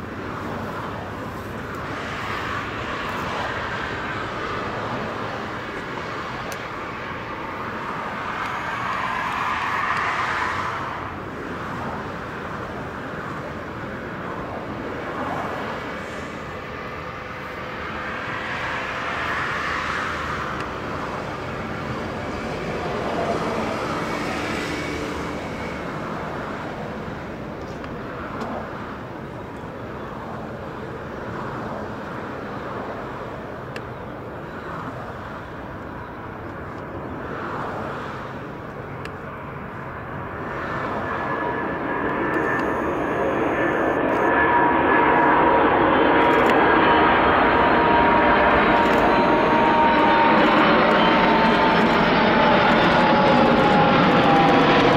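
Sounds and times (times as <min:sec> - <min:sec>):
jet engines on approach: 0:00.0 - 0:54.9.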